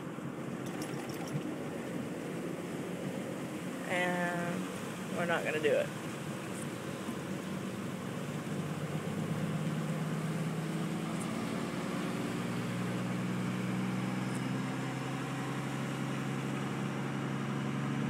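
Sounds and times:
floodwater washing against vehicle: 0:00.2 - 0:13.4.

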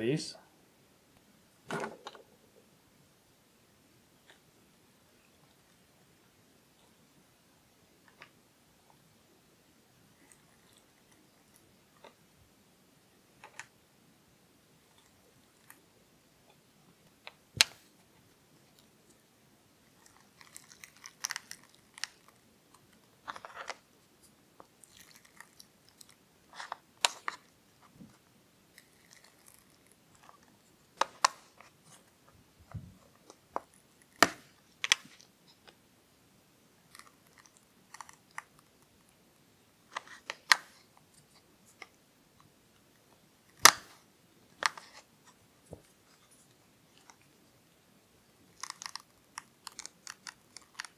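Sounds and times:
plastic mold cracking and snapping: 0:43.6 - 0:43.9, 0:48.6 - 0:50.9.

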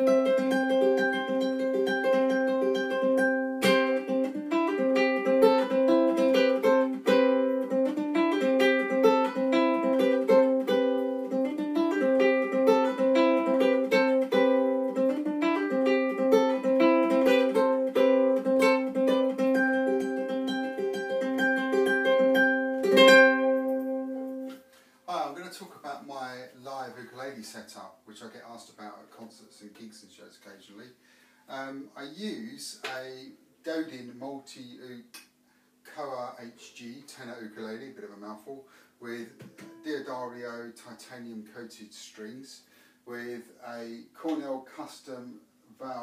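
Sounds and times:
amplified ukulele melody: 0:00.0 - 0:24.6, 0:39.4 - 0:40.0
ukulele strum: 0:00.0 - 0:24.7, 0:39.4 - 0:40.4.

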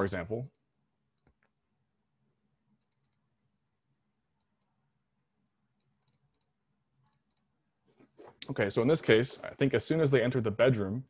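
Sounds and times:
faint clicks: 0:05.8 - 0:07.5.

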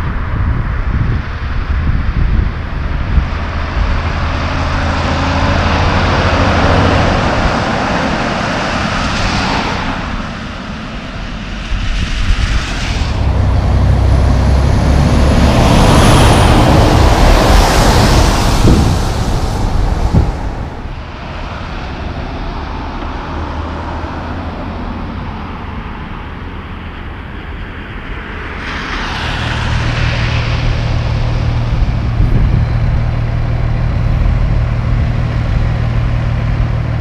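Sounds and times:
diesel trucks driving past: 0:00.0 - 0:37.0
tyre hiss on wet road: 0:28.4 - 0:31.8.

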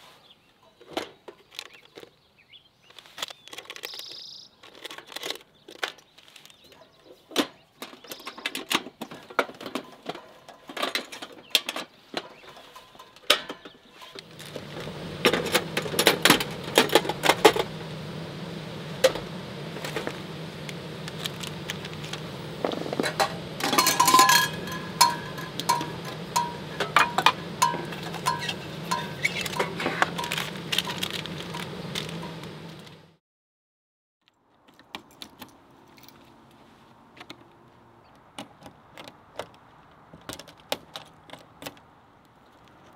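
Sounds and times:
steady low hum: 0:14.1 - 0:33.2.

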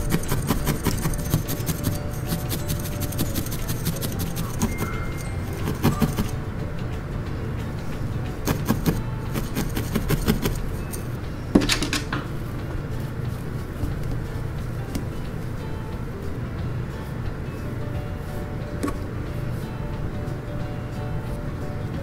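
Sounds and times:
felting needle scratchy clicks: 0:00.0 - 0:06.3, 0:08.4 - 0:11.2.

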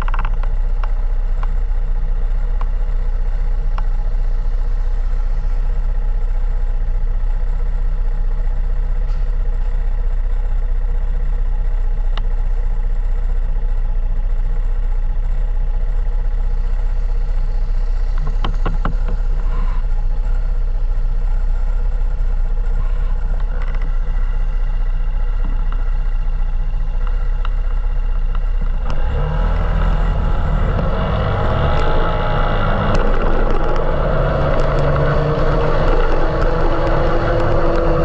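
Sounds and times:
vehicle engine running: 0:00.0 - 0:38.0.

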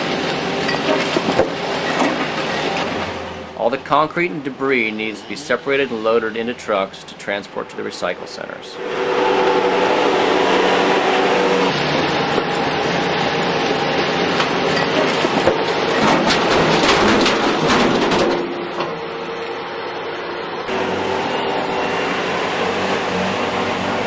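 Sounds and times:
track loader engine running: 0:00.0 - 0:24.0
concrete crashing into steel truck bed: 0:14.8 - 0:18.6.

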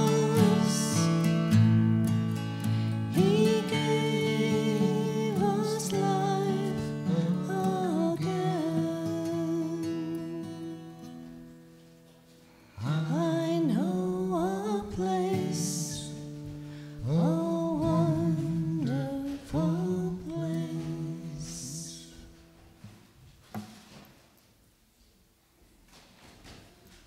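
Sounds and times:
man singing: 0:00.0 - 0:01.3, 0:03.1 - 0:11.1, 0:12.8 - 0:16.2, 0:17.0 - 0:22.3
strummed acoustic guitar: 0:00.0 - 0:23.0.

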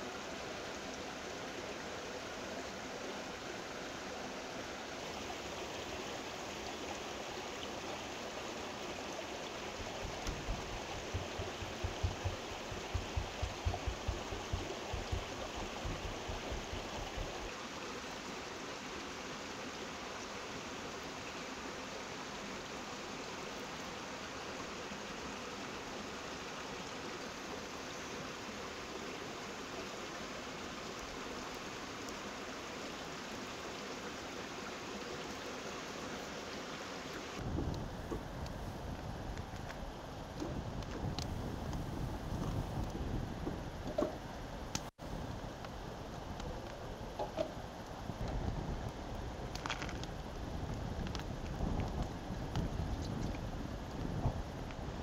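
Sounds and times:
mountain stream rushing: 0:00.0 - 0:55.0
low thumps: 0:09.8 - 0:17.5.

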